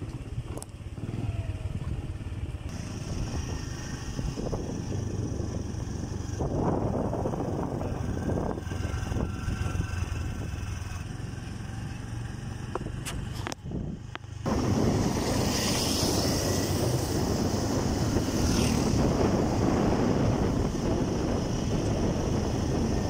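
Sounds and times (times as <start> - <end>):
motorcycle engine running: 0.0 - 23.0
wind rushing over microphone: 2.7 - 11.1, 12.6 - 23.0.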